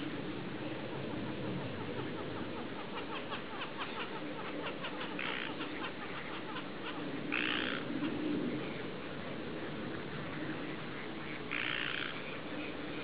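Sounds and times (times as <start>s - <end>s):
ducks quacking: 1.0s - 8.2s, 10.7s - 12.3s.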